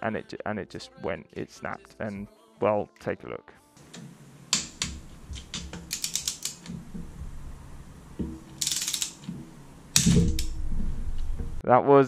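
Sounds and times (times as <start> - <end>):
torque wrench ratchet clicking: 5.7 - 6.8, 8.5 - 9.3.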